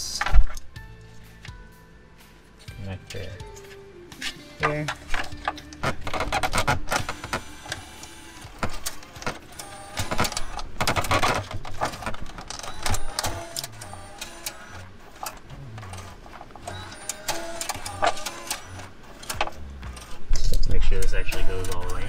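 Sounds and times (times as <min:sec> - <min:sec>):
faint pitched tones: 0:15.4 - 0:17.5.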